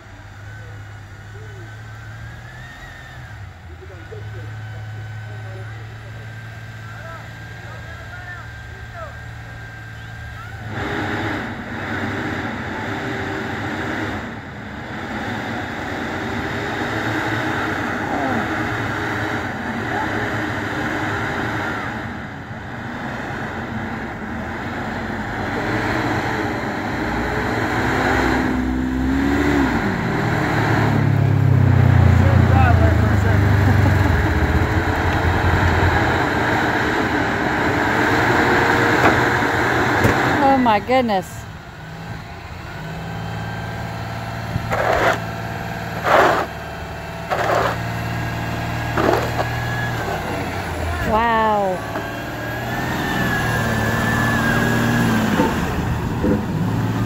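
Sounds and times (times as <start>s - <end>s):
atv engine approaching: 0.0s - 57.0s
bus engine with tires spinning: 0.0s - 57.0s
short crunching noises: 47.2s - 47.9s, 48.9s - 50.4s.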